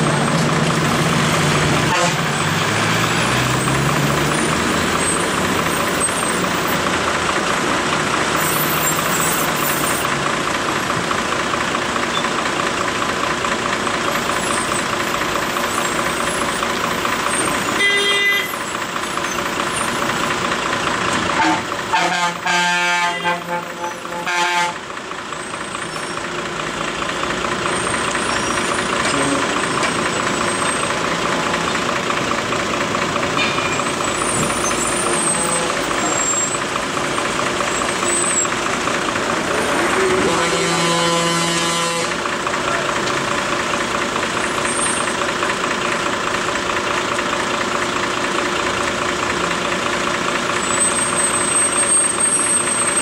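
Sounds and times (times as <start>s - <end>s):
heavy truck engines running: 0.0s - 53.0s
road traffic noise: 0.0s - 53.0s
truck horn blasts: 1.8s - 3.5s, 17.4s - 18.7s, 21.3s - 24.9s, 34.4s - 36.4s, 39.4s - 42.4s.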